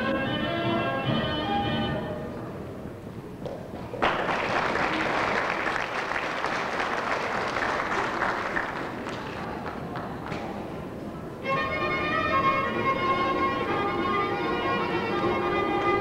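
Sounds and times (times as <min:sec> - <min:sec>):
audience applauding: 0:03.8 - 0:10.6.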